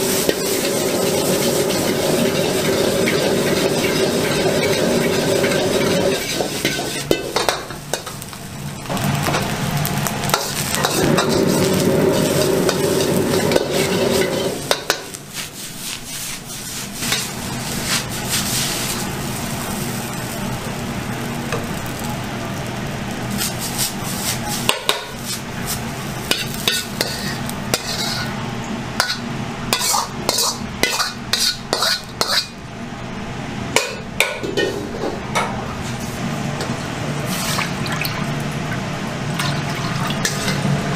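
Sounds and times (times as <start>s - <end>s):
metal ladle scraping wok: 0.0s - 7.4s, 10.3s - 19.2s, 26.3s - 28.4s, 29.8s - 32.6s, 40.2s - 40.6s
food sizzling: 0.0s - 32.6s, 35.8s - 40.9s
gas burner roar: 0.0s - 40.9s.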